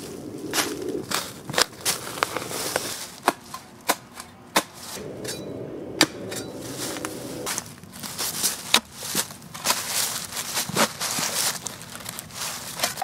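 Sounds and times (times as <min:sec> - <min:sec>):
blade scraping in dirt: 0:05.0 - 0:07.6
dry leaves crunching underfoot: 0:07.9 - 0:13.0.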